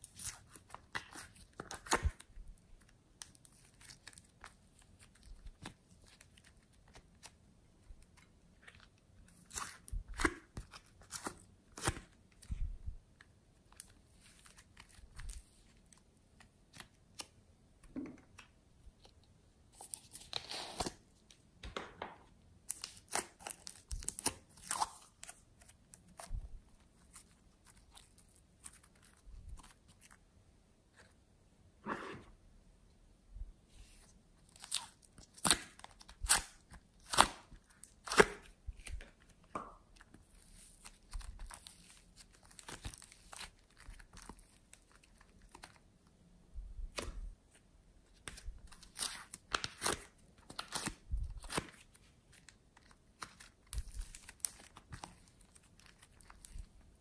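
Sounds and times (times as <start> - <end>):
slime squelching and crackling: 48.1 - 57.0.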